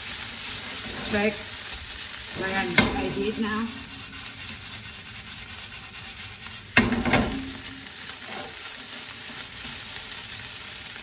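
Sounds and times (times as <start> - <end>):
rice sizzling in a frying pan: 0.0 - 11.0
spatula knocking and scraping pan: 2.3 - 4.5, 6.7 - 8.6.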